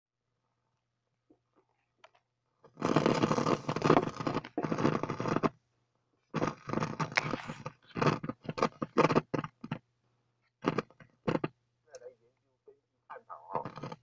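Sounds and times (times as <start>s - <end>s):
microphone handling noise: 6.4s - 9.8s.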